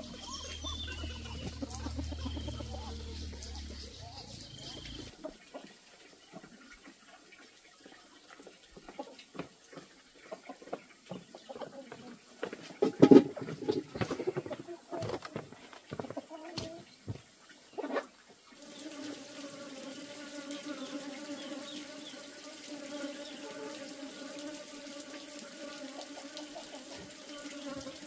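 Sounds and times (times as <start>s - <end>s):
honeybees buzzing: 0.0s - 5.2s, 18.6s - 28.0s.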